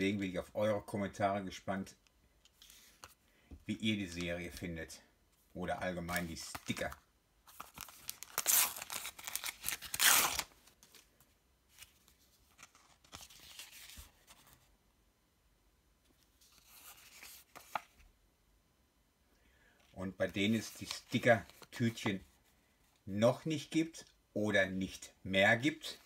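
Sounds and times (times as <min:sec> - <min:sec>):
wrapper ripping: 0:07.5 - 0:10.6.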